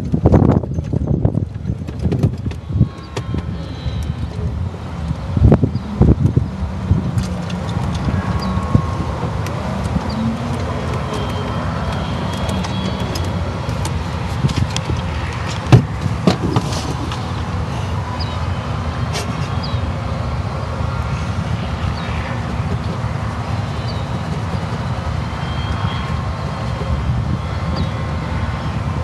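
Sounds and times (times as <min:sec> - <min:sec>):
sharp knocks and rattles: 0:00.0 - 0:03.5, 0:22.4 - 0:27.0
golf cart rumbling over grass: 0:07.0 - 0:17.6.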